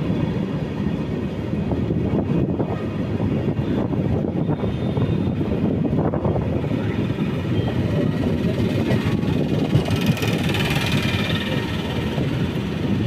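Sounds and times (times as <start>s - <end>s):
train rumbling: 5.2s - 13.0s.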